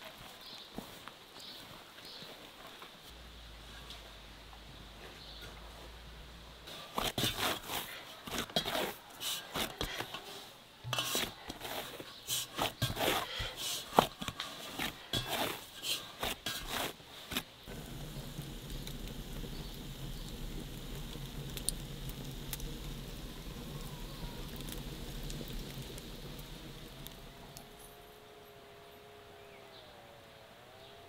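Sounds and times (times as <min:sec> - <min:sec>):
wood fire burning: 0:06.6 - 0:28.2
hands kneading bread dough: 0:06.7 - 0:17.6.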